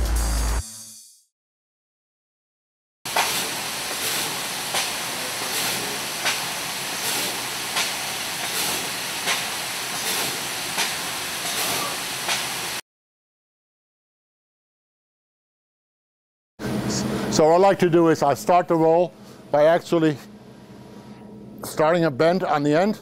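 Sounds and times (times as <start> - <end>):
laser cutting machine hissing: 3.1 - 12.8.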